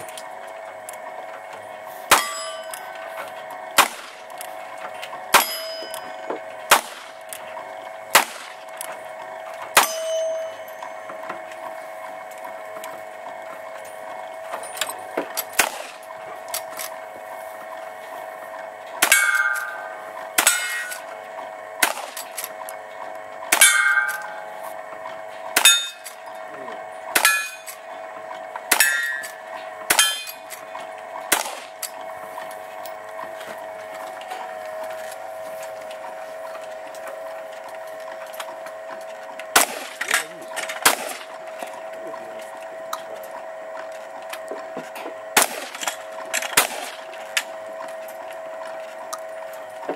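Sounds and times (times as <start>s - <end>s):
steel plates clanging: 2.1s - 6.7s, 9.8s - 11.1s, 19.0s - 21.1s, 23.5s - 24.6s, 25.4s - 26.5s, 27.2s - 27.8s, 28.7s - 30.7s
gunshots: 3.8s - 4.2s, 6.7s - 7.1s, 8.1s - 8.6s, 15.6s - 16.0s, 21.8s - 22.2s, 31.3s - 31.7s, 39.6s - 40.2s, 40.8s - 41.3s, 45.4s - 45.9s, 46.5s - 47.0s.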